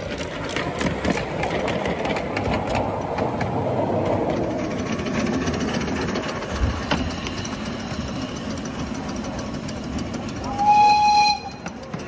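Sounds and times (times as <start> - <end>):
miniature train running on track: 0.0 - 12.0
train whistle blast: 10.5 - 11.7.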